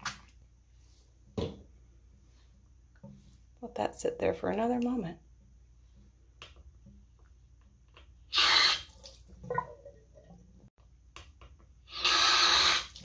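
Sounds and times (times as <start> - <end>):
faucet water running: 8.4 - 10.4, 12.0 - 13.0.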